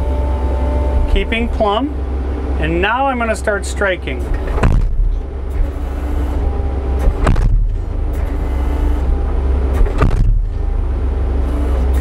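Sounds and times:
skid steer engine running: 0.0 - 12.0
post pounder hammer strikes: 4.6 - 5.2, 7.1 - 7.9, 9.8 - 10.6.

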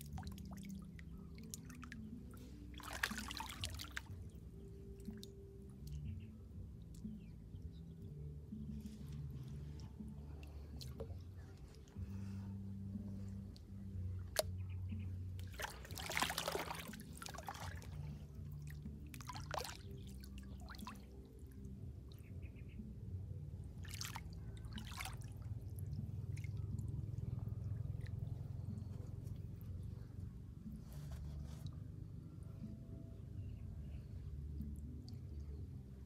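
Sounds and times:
steady low rumble: 0.0 - 31.0
hands splashing in shallow water: 2.8 - 4.1, 15.4 - 18.0, 18.6 - 19.9.

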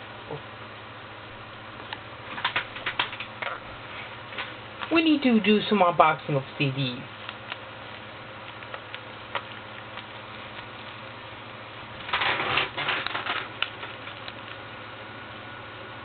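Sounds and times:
steady low hiss: 0.0 - 16.0
rustling and scraping: 12.0 - 14.3.

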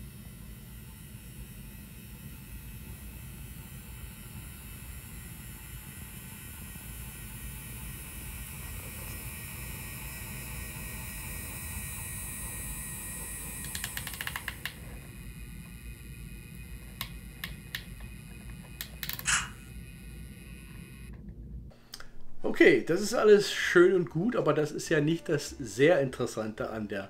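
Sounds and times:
model locomotive motor humming: 0.0 - 21.2
clicks: 13.4 - 15.8, 16.4 - 19.7.

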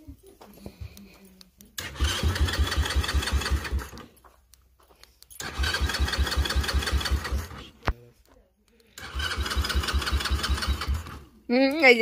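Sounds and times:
electric starter cranking engine: 1.8 - 4.1, 5.4 - 7.8, 9.0 - 11.4.

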